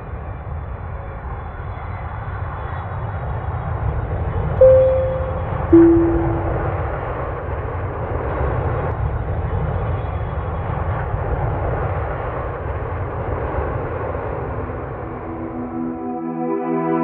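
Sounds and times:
airliner cabin drone: 4.6 - 7.1, 13.3 - 17.0.

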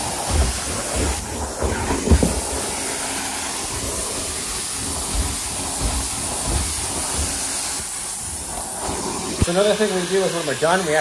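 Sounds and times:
hiss of suction: 0.0 - 11.0
tool thudding on steps: 0.2 - 2.6.

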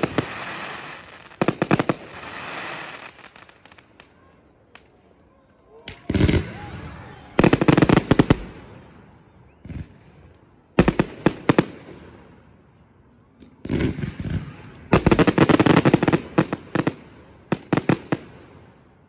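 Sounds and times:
fireworks bangs and crackles: 0.0 - 5.0, 5.8 - 12.6, 13.3 - 19.0.

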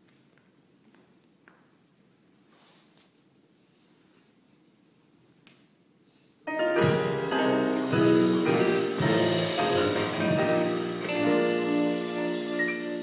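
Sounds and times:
piano playing chords: 6.5 - 13.0.

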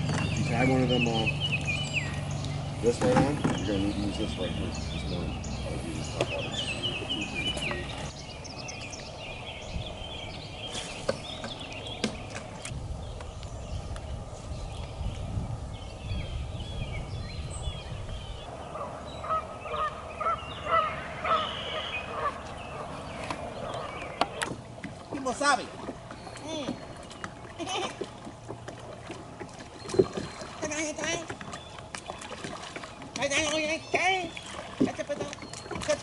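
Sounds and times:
small birds chirping: 0.0 - 36.0
short repeated bird calls: 18.6 - 24.5.

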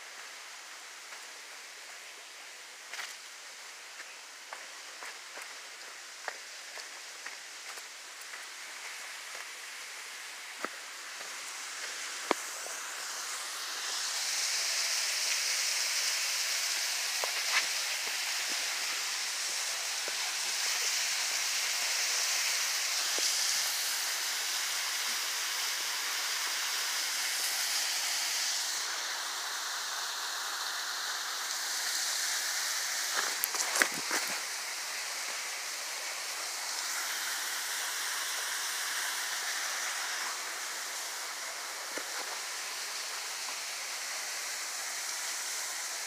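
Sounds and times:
footsteps on forest floor: 2.9 - 3.4, 4.0 - 10.0, 10.6 - 12.8, 17.2 - 18.8, 33.0 - 34.6
waterfall rushing: 7.6 - 46.0.

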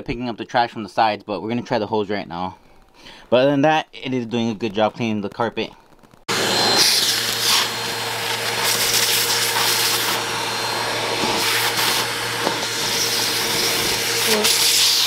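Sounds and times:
vacuum cleaner running: 6.3 - 15.0.

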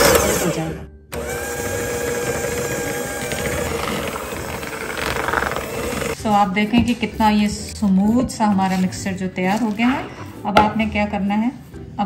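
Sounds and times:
electric hand mixer whining: 0.0 - 6.2.

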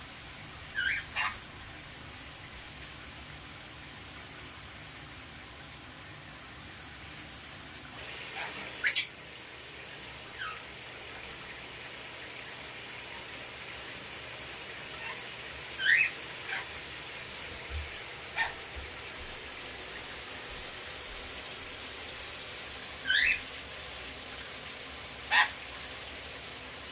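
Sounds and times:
shower running: 0.0 - 26.9
parrots calling: 0.7 - 1.4, 8.2 - 9.2, 10.3 - 10.7, 15.8 - 16.8, 18.3 - 18.6, 23.0 - 23.5, 25.3 - 25.6.

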